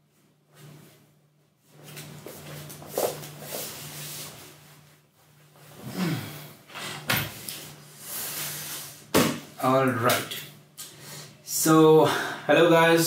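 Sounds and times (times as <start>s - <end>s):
rustling and shuffling: 0.0s - 6.0s
steady low hum: 0.0s - 13.0s.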